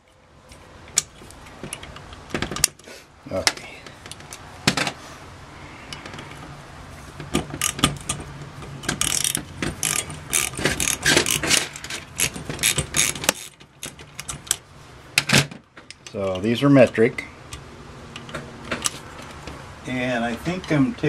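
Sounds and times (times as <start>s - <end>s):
socket ratchet clicking: 7.4s - 14.6s.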